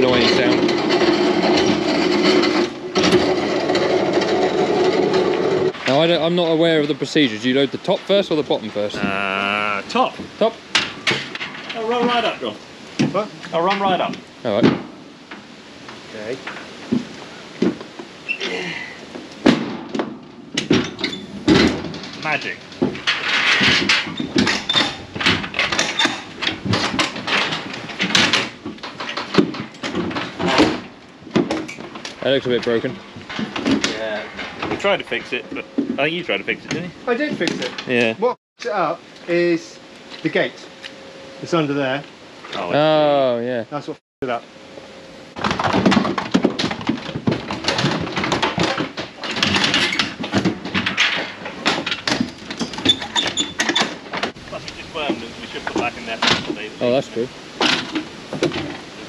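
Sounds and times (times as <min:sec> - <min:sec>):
metallic knocks and rattles: 0:00.0 - 0:07.0, 0:19.4 - 0:38.0, 0:45.4 - 0:54.4.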